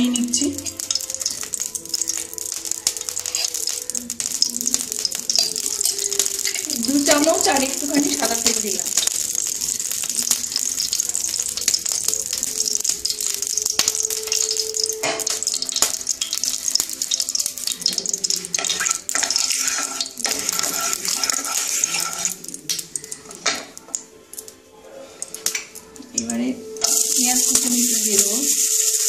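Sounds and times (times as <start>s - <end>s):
oil sizzling and crackling: 0.0s - 29.0s
spatula spreading oil in pan: 0.6s - 23.7s.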